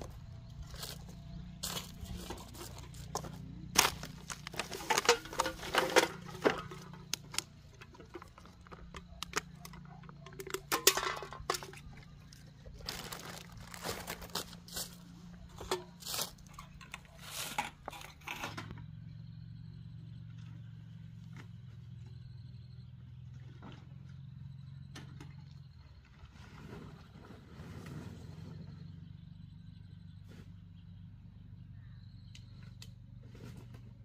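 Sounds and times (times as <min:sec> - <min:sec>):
irregular crunching and crinkling: 0:00.0 - 0:18.5.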